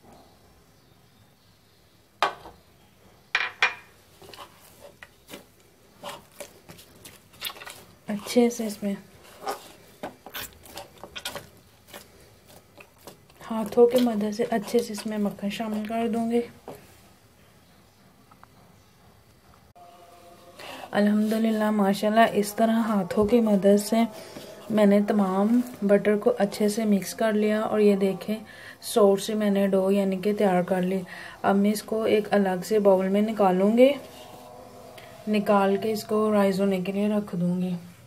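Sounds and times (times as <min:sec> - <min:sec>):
glass bowl knocking on plate: 0:03.4 - 0:03.9
hand kneading sticky dough: 0:04.2 - 0:16.9.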